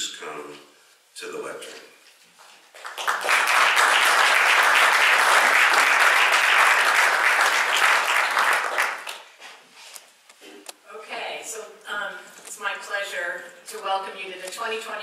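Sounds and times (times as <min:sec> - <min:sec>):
audience applauding: 0:02.7 - 0:09.4.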